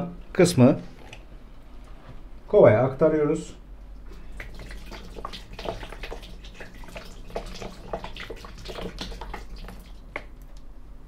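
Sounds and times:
water trickling and splashing: 0:03.9 - 0:10.6.

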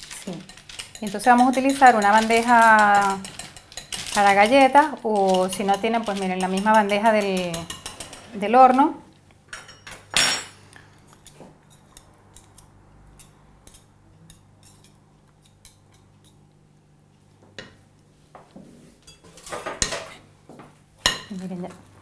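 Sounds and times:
whisk clinking against glass bowl: 0:00.4 - 0:08.3.

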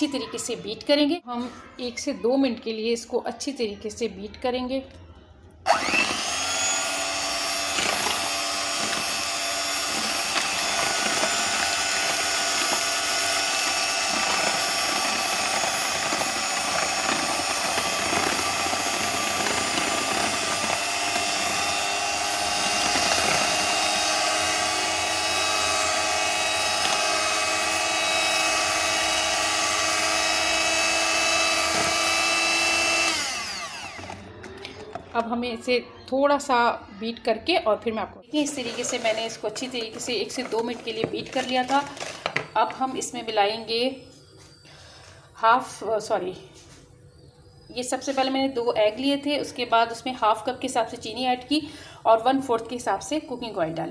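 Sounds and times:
electric hand mixer whisking: 0:05.7 - 0:34.2, 0:38.6 - 0:42.1.

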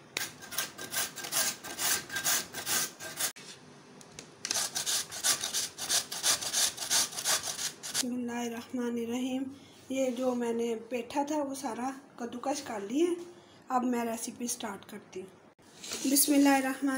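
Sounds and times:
pumpkin rasping on grater: 0:00.2 - 0:03.4, 0:04.5 - 0:08.0.

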